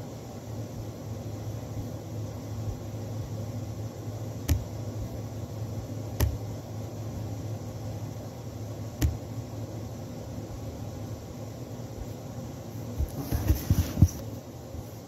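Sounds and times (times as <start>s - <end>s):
steady low hum: 0.0s - 15.0s
sharp taps: 4.5s - 4.7s, 6.2s - 6.4s, 9.0s - 9.2s.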